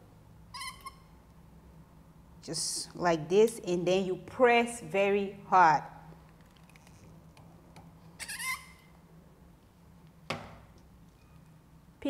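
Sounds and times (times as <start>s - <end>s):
pliers squeak: 0.5s - 1.1s, 8.2s - 8.9s.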